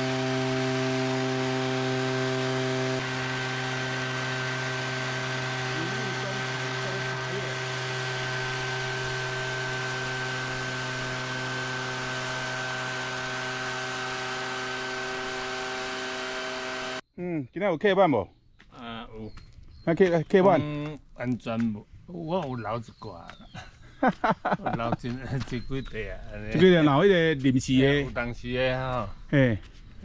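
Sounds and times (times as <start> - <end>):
small engine buzzing: 0.0 - 17.0.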